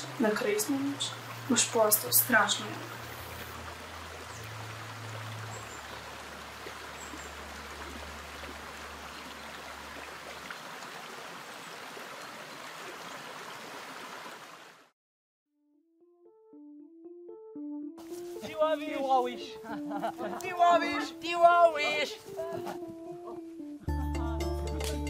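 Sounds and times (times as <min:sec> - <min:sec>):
stream water rushing: 0:00.0 - 0:14.9.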